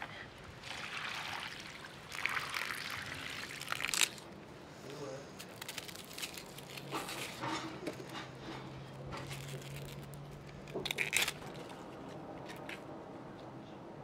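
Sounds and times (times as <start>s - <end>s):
onion skin crackling and tearing: 3.4s - 4.4s, 5.3s - 8.2s, 9.1s - 12.7s.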